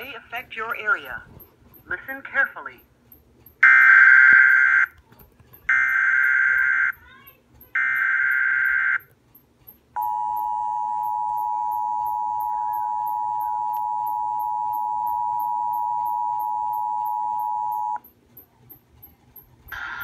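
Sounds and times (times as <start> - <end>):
two-tone alarm signal: 3.6 - 4.9, 5.7 - 7.0, 7.8 - 9.1, 10.0 - 18.0.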